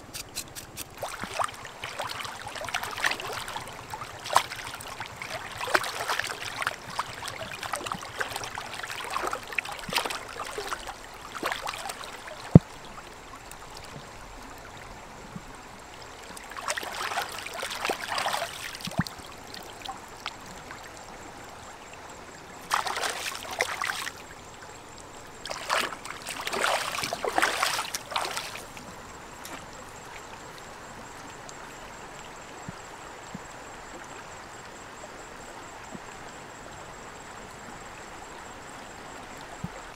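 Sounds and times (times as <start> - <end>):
water splashing: 0.0 - 12.6, 16.4 - 19.6, 22.7 - 24.2, 25.4 - 29.7
stream running: 0.0 - 39.9.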